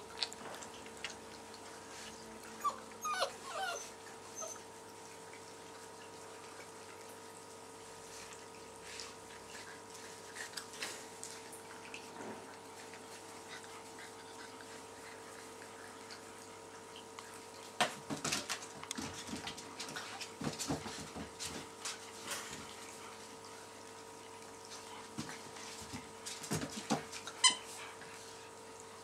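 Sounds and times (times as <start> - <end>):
puppies scuffling: 17.4 - 22.9, 24.7 - 28.0.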